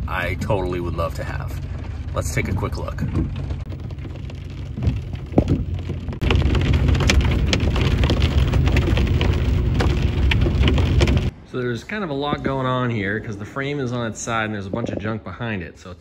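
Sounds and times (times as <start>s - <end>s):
rain on a vehicle roof: 0.0s - 11.3s
low engine rumble: 0.0s - 16.0s.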